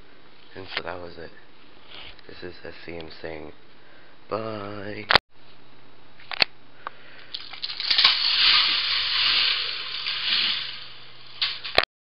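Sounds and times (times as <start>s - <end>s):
low steady hum: 0.0s - 11.8s
toy coaster rattling on plastic track: 7.5s - 11.8s.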